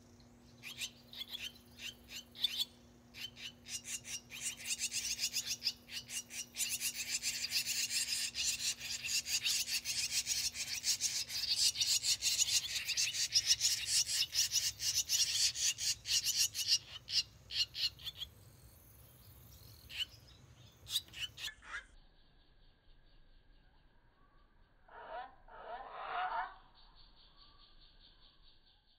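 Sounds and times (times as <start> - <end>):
nestlings begging chirps: 0.0 - 21.6.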